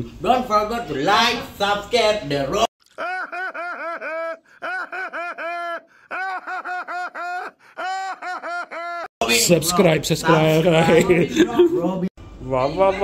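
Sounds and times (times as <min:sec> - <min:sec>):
cartoon dog laughing: 0:02.9 - 0:09.1.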